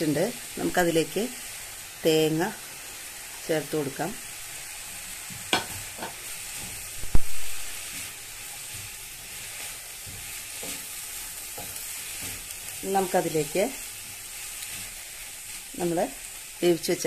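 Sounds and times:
steady sizzle: 0:00.0 - 0:17.0
wooden spatula scraping pan: 0:07.8 - 0:15.6.

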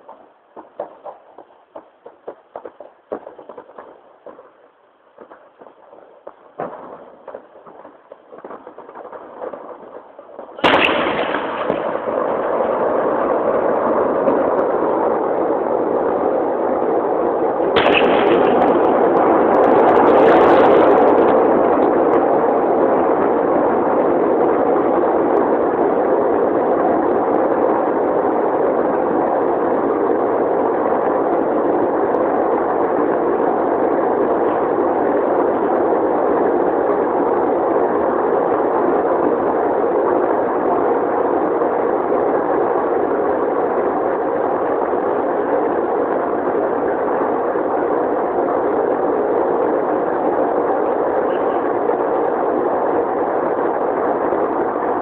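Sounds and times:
distant explosion rumbling: 0:00.0 - 0:29.0
rushing rumble: 0:00.0 - 0:55.0.

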